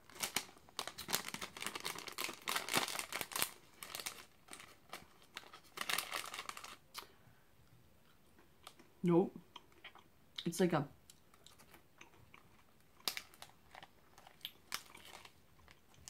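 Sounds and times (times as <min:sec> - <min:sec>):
plastic wrapper crinkling and tearing: 0:00.0 - 0:07.1, 0:13.0 - 0:16.0.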